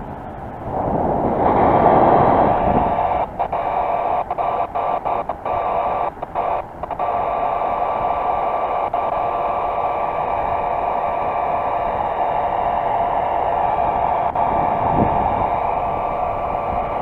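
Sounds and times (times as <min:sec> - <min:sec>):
rushing wind noise: 0:00.0 - 0:17.0.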